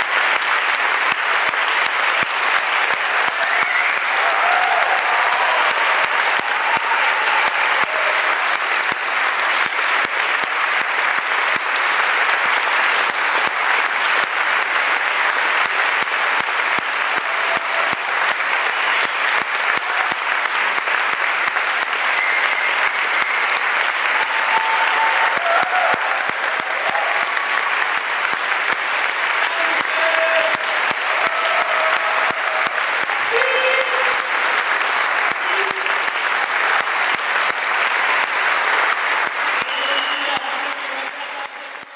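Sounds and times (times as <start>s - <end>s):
audience applauding: 0.0s - 41.9s.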